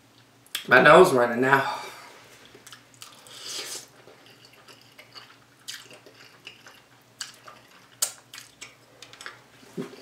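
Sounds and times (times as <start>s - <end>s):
wet chewing sounds: 2.4s - 10.0s
person slurping noodles: 3.1s - 3.9s.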